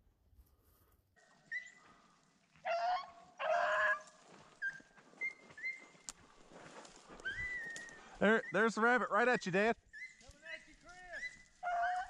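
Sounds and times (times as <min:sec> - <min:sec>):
dogs baying: 0:02.6 - 0:05.9, 0:11.2 - 0:12.0
dogs yelping: 0:02.6 - 0:06.1, 0:07.1 - 0:08.7, 0:09.9 - 0:10.2, 0:11.1 - 0:12.0.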